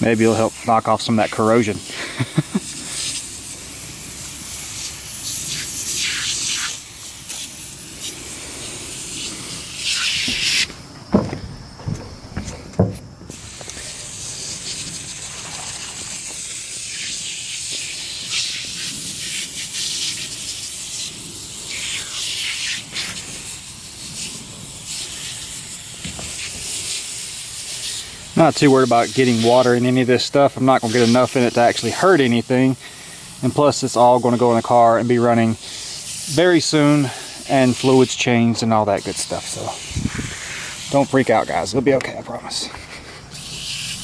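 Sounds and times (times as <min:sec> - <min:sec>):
aerosol can spraying: 0:00.0 - 0:10.8, 0:12.8 - 0:44.0
short knocks: 0:11.1 - 0:13.1.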